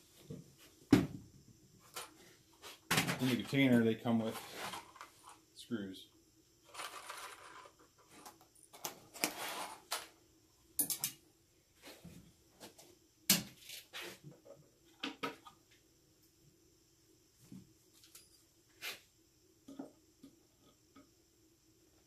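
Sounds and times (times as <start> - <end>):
small screws rattling: 6.7 - 7.8.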